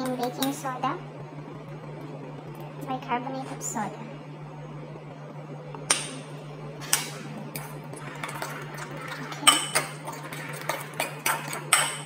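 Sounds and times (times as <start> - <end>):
steady low hum: 0.0 - 12.0
metal spoon clinking on bowl: 9.4 - 10.0.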